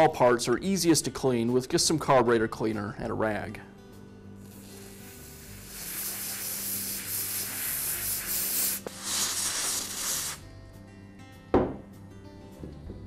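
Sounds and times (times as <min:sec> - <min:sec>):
aerosol spray hissing: 0:04.4 - 0:10.4.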